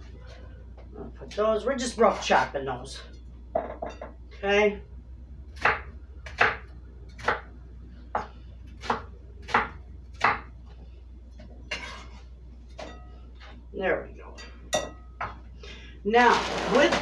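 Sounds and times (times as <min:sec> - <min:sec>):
knife chopping on wooden board: 0:08.2 - 0:10.5.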